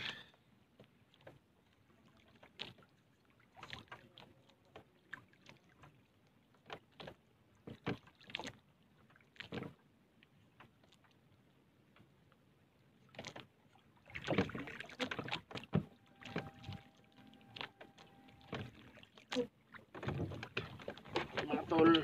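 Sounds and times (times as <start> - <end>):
fishing gear rustling and knocking: 19.8 - 22.0.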